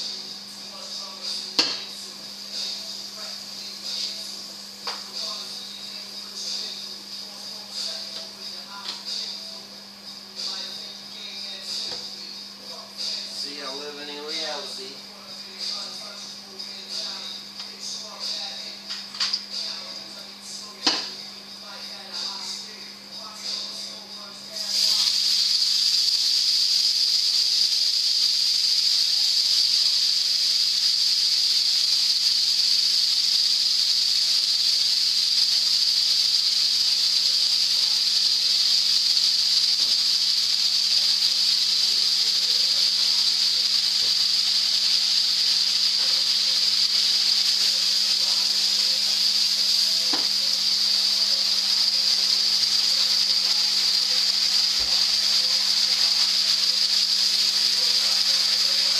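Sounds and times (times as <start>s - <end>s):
meat sizzling in frying pan: 24.7s - 58.9s.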